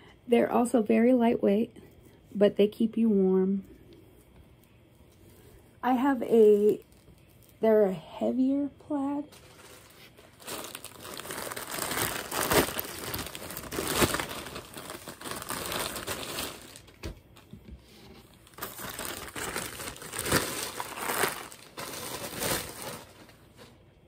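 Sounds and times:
plastic mailer bag crinkling: 5.9 - 7.7, 9.2 - 17.5, 18.2 - 23.8.

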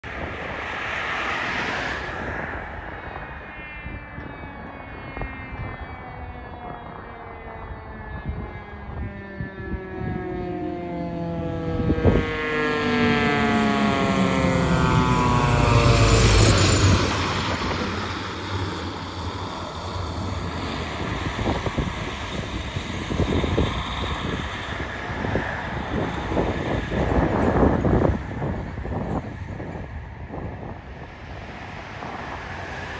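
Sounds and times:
fire engine siren: 0.6 - 31.1
truck engine rumble: 10.1 - 27.8
tyre and wind noise: 14.0 - 32.9.

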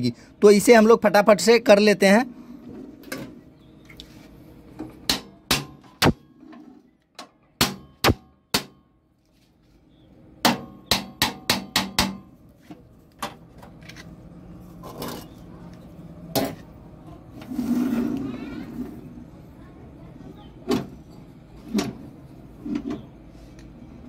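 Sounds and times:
sharp metal knocks on machine: 5.1 - 6.3, 7.6 - 8.8, 10.4 - 12.3.

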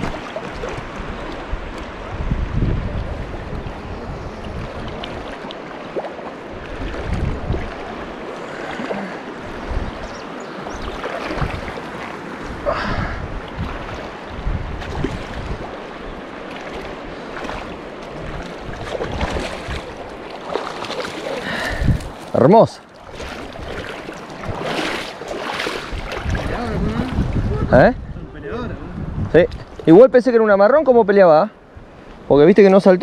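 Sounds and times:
wind on microphone: 0.0 - 5.5, 6.5 - 8.6, 9.3 - 20.2, 21.4 - 22.2, 23.1 - 29.9
river water rushing: 0.0 - 27.5.

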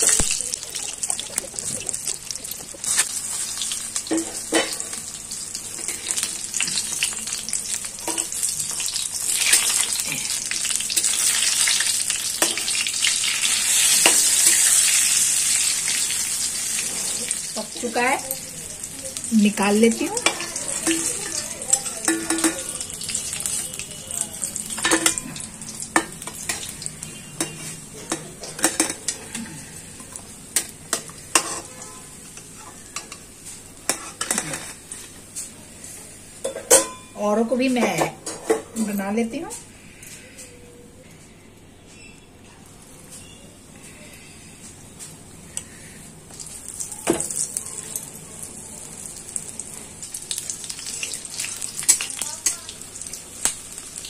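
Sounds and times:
hot oil sizzling in a pan: 0.0 - 35.0, 45.6 - 54.0
metal spatula scraping a pan: 31.3 - 32.9, 33.9 - 34.8.

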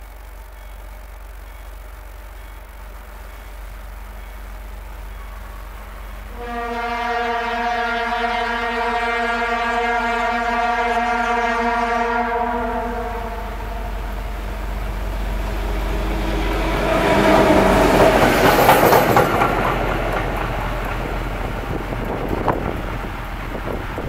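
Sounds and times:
train wheels on rails: 0.0 - 24.0
diesel locomotive engine passing: 0.1 - 24.0
locomotive horn: 5.1 - 18.4.

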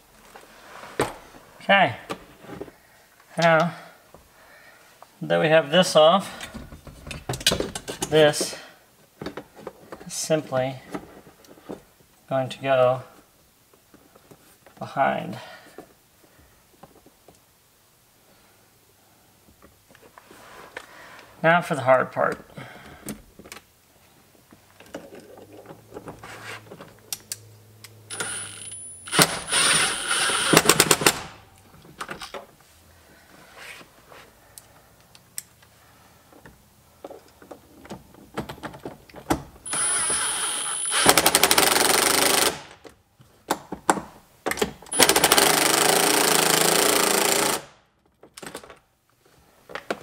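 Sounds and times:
impact driver whine and rattle: 28.1 - 31.4, 39.7 - 42.8, 44.9 - 47.7.

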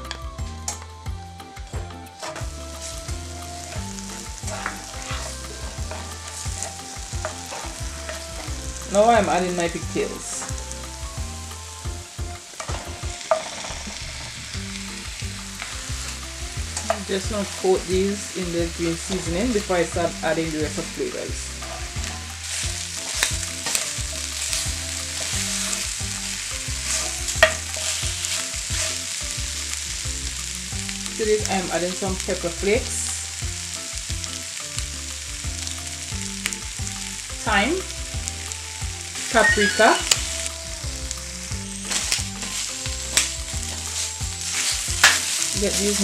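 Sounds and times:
meat sizzling in a skillet: 0.0 - 46.0
soft background music: 0.0 - 46.0
wooden spoon scraping a pan: 2.2 - 10.5, 12.4 - 14.3, 15.6 - 19.6, 20.3 - 30.5, 39.1 - 46.0
wooden spoon knocking pan: 22.9 - 29.1.

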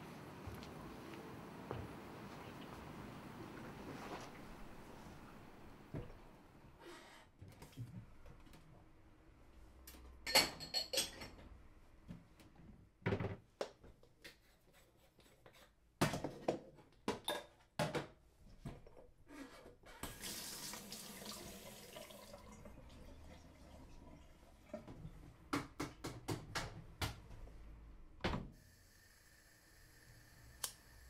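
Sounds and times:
water pouring: 20.1 - 24.9.

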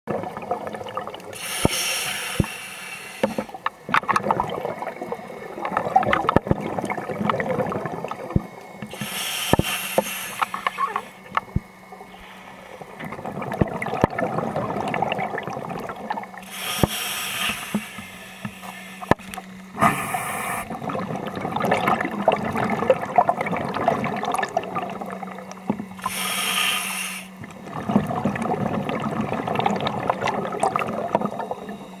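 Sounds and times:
diver breathing through regulator: 1.4 - 3.6, 8.9 - 11.2, 12.1 - 13.0, 16.4 - 20.7, 26.0 - 27.4.

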